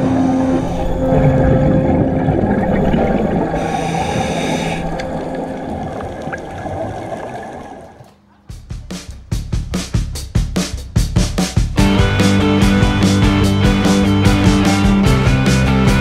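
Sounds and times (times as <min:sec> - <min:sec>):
scuba regulator bubbles: 0:00.0 - 0:08.1
breath hissing through regulator: 0:03.3 - 0:05.5.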